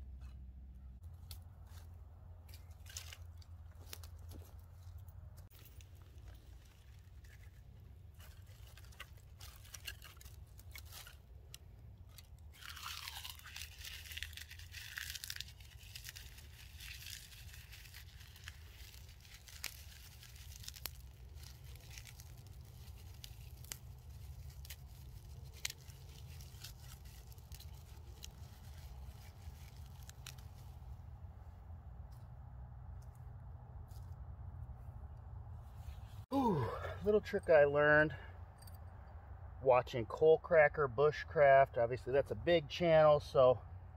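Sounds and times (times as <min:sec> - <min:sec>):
dry twigs snapping and crunching: 0:01.0 - 0:31.1.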